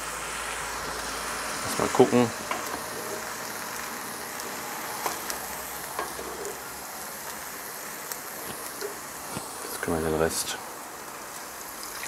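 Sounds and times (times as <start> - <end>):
meat and vegetables sizzling: 0.0 - 12.0
wooden spoon stirring: 2.4 - 3.5, 4.4 - 6.7.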